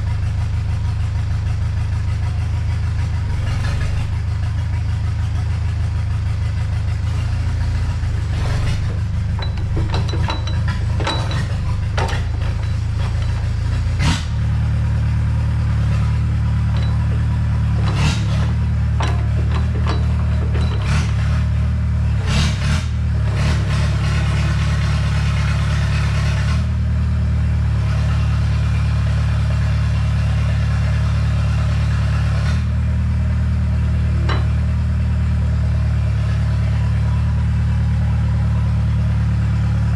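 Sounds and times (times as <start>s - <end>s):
excavator diesel engine running: 0.0s - 39.9s
sharp knocks and clanks: 8.0s - 14.8s, 15.7s - 23.6s, 34.2s - 35.0s.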